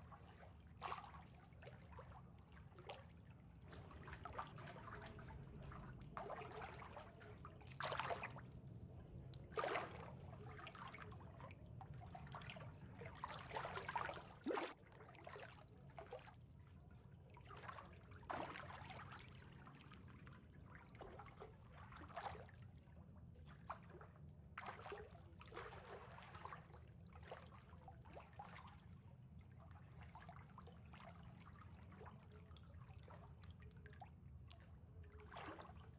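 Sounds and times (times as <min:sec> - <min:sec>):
water trickling and splashing: 0:00.1 - 0:16.3.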